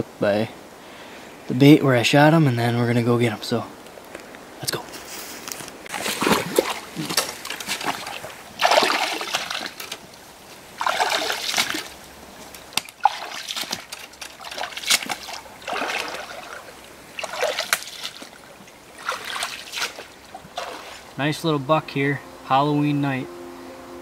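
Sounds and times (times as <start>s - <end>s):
water splashing under wading boots: 5.8s - 21.3s.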